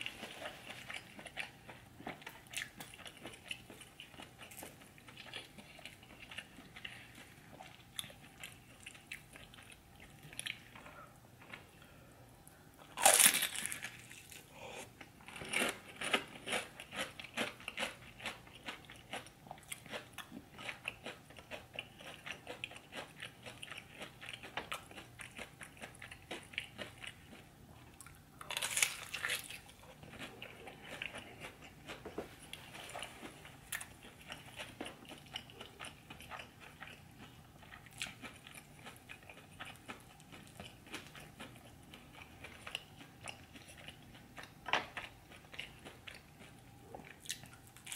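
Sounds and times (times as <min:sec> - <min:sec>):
person chewing food: 0:00.0 - 0:47.9.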